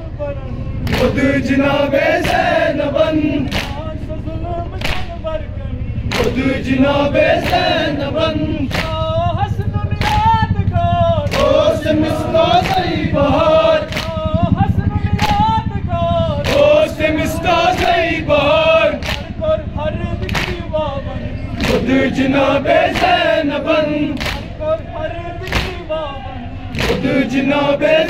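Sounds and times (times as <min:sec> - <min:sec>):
men chanting in unison: 0:00.0 - 0:28.0
chest-beating slaps: 0:00.8 - 0:01.3, 0:03.5 - 0:03.8, 0:04.8 - 0:05.2, 0:06.1 - 0:06.5, 0:08.7 - 0:09.1, 0:10.0 - 0:10.4, 0:13.9 - 0:14.3, 0:15.2 - 0:15.5, 0:19.0 - 0:19.3, 0:20.2 - 0:20.7, 0:21.6 - 0:22.0, 0:22.7 - 0:23.2, 0:24.1 - 0:24.5, 0:25.5 - 0:25.9, 0:26.8 - 0:27.2.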